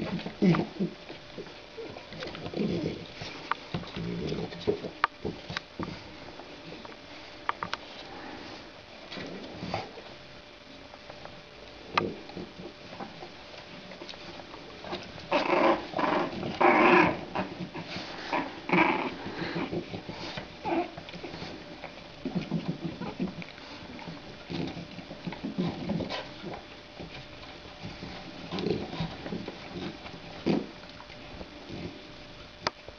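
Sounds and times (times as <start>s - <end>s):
puppies growling: 0.0s - 6.9s, 11.9s - 32.4s.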